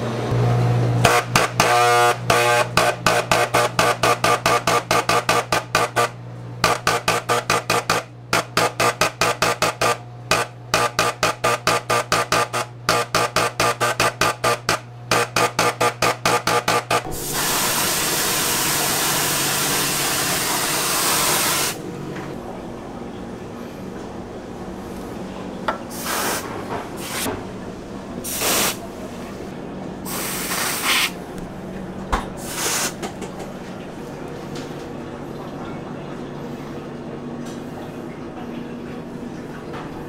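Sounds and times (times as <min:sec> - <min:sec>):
spray gun hissing: 0:17.1 - 0:21.8, 0:28.3 - 0:28.8, 0:30.1 - 0:31.2.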